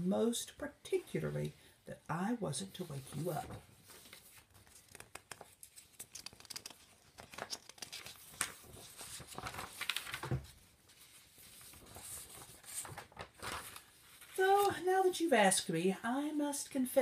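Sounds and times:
magazine pages rustling: 2.8s - 14.9s.

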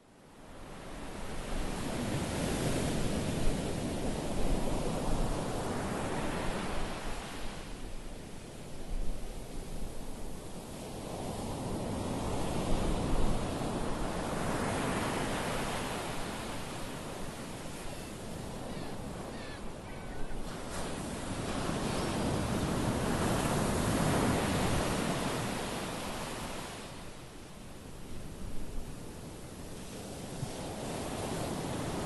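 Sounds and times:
ocean surf breaking: 12.1s - 27.2s.

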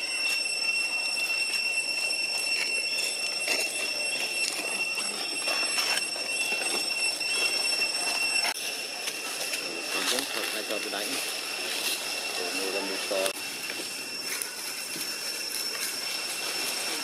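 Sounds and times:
cicadas droning: 0.0s - 17.0s
rustling of leaf litter: 8.6s - 17.0s.

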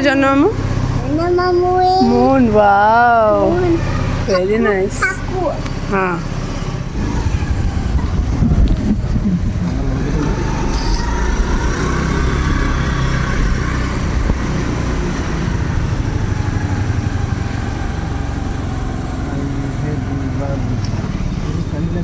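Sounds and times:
wind and road noise: 0.0s - 22.0s.

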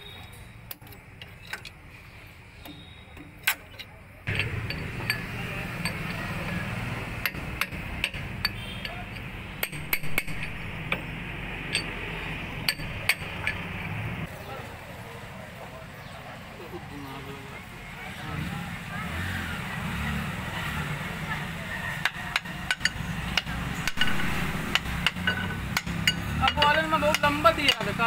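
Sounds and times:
steady background noise: 0.0s - 28.0s
hammer tapping on metal: 4.3s - 11.1s, 12.6s - 13.9s, 21.9s - 28.0s.

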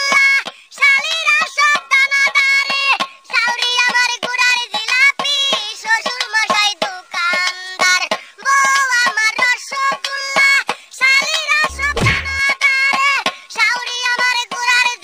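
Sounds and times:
quick steady beat: 11.7s - 12.5s.

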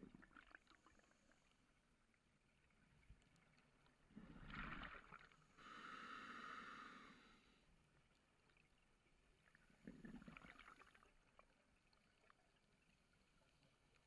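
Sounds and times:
crackling bubbles: 0.0s - 1.5s, 3.0s - 5.8s, 9.3s - 14.0s
rush of exhaled bubbles: 4.2s - 5.3s, 9.8s - 11.1s
diver breathing through regulator: 5.6s - 7.5s.

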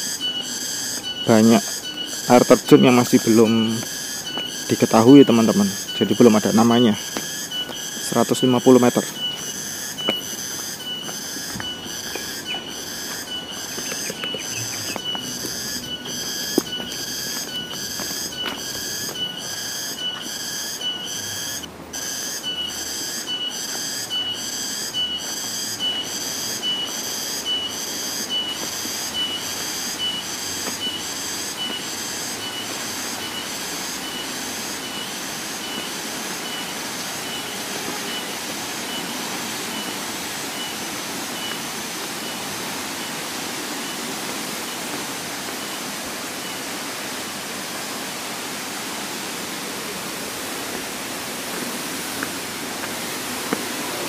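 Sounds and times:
high chirping call: 0.0s - 43.2s
waterfall rushing: 0.9s - 19.2s, 26.2s - 54.0s.

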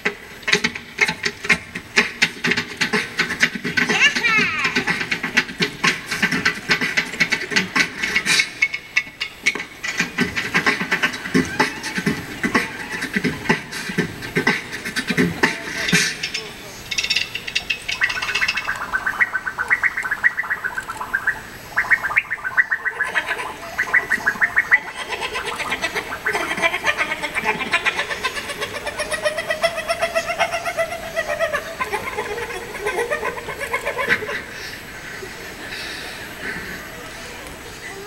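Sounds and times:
high-pitched squeaky cries: 11.3s - 13.1s.

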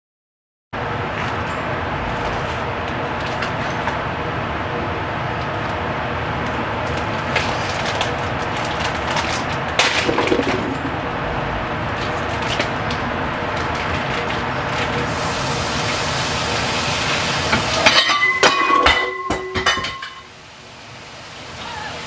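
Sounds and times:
steady rushing noise: 0.8s - 16.8s
crackling clatter: 6.4s - 15.1s
kitchen things clattering: 8.8s - 11.0s, 17.8s - 20.3s.

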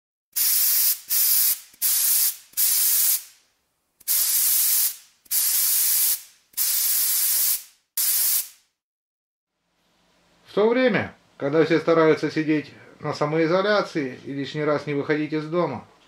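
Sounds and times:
spray paint can hissing: 0.4s - 3.4s, 4.0s - 8.7s.

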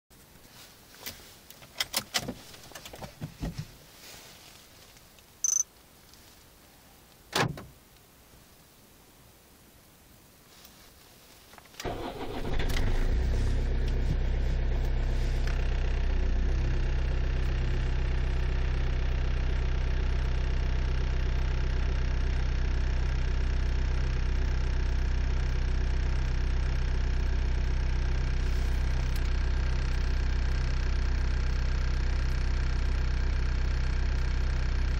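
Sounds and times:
engine cranking: 11.8s - 14.0s
diesel engine idling: 11.8s - 34.9s.

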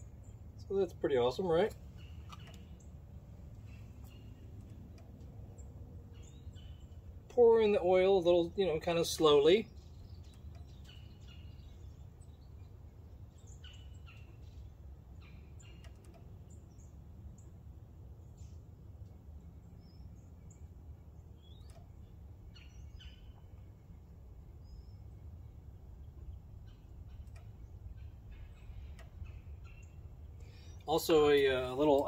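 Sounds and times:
low steady rumble: 0.0s - 32.0s
bird chirps: 3.6s - 7.2s, 9.4s - 17.6s, 19.6s - 32.0s.

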